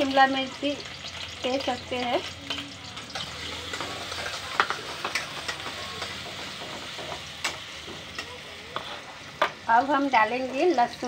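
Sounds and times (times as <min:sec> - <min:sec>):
onion sizzling in hot oil: 0:00.0 - 0:11.0.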